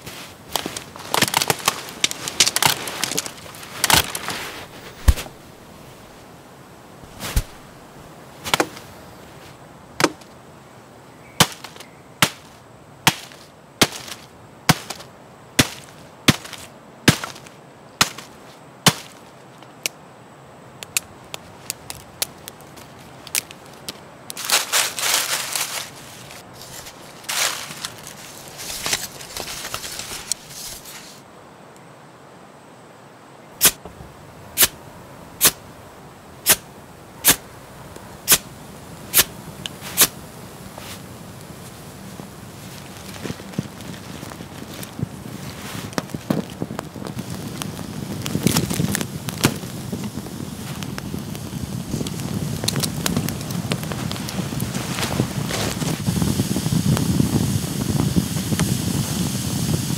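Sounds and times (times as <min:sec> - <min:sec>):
wood cracking: 0:00.0 - 0:05.4, 0:10.0 - 0:10.3, 0:11.4 - 0:20.0, 0:20.8 - 0:30.5, 0:45.7 - 0:49.8
dry twigs rustling and crackling: 0:00.0 - 0:10.4, 0:11.2 - 0:20.0, 0:20.7 - 0:31.2, 0:33.6 - 0:57.2.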